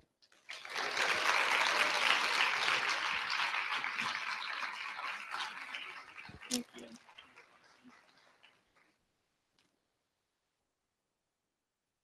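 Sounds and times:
audience applauding: 0.4 - 9.0.

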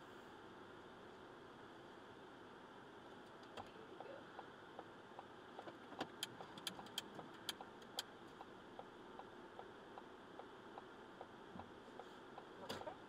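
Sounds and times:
faint cabin hum: 0.0 - 13.0
sharp clicks and light rattling: 5.6 - 8.1.

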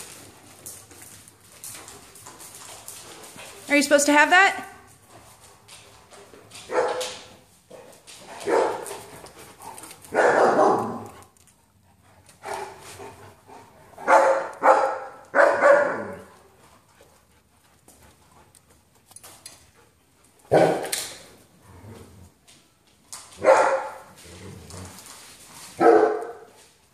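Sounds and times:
dog barking: 6.7 - 7.2, 8.4 - 8.8, 10.1 - 11.2, 14.0 - 16.3, 20.5 - 20.9, 23.4 - 24.0, 25.8 - 26.5.

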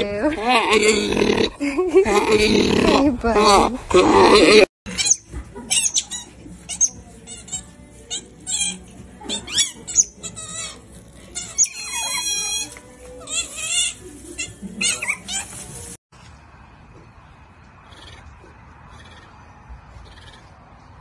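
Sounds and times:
otters squeaking chirps: 4.9 - 15.6.

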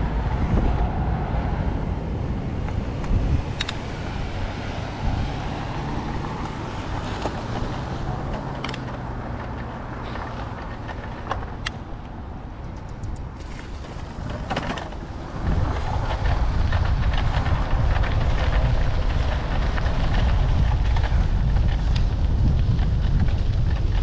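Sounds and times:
road and tyre noise: 0.0 - 24.0
wind buffeting microphone: 0.0 - 24.0
clicks and crackles: 2.6 - 4.2, 5.1 - 24.0.

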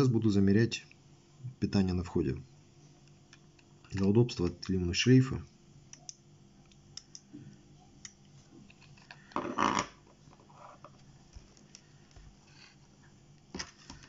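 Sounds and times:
soft clicks: 5.9 - 7.3.

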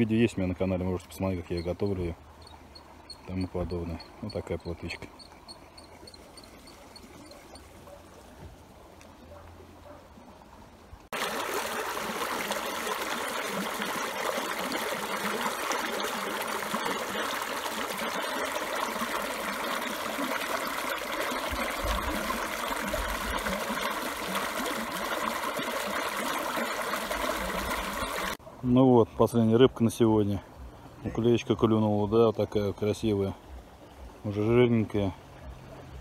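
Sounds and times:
water rushing over stones: 11.1 - 28.4.

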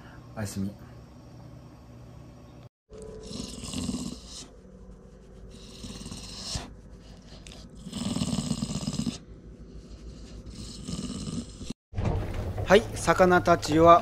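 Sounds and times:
dog breathing and snuffling: 3.2 - 11.8.

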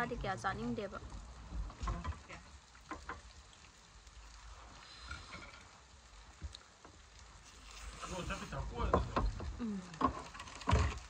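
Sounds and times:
low steady rumble: 0.0 - 2.6.

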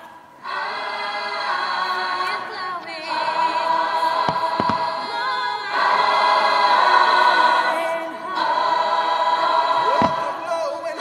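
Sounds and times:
choir singing: 0.0 - 11.0
firework bangs: 4.2 - 5.0, 9.8 - 10.4.

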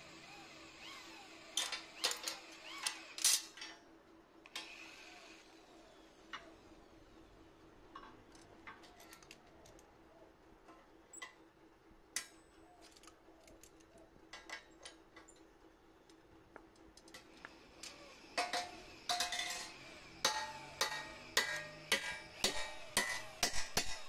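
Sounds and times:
hammer striking steel bar: 20.2 - 24.0.

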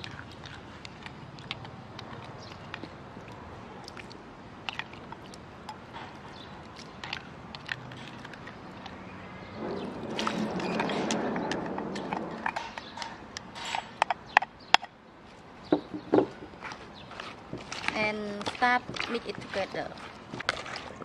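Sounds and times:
rustling of tipped vegetables: 16.1 - 21.0.

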